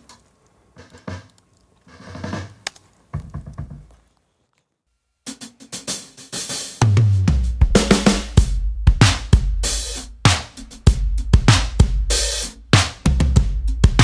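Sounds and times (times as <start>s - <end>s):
drum kit playing: 0.8s - 1.4s, 5.2s - 14.0s.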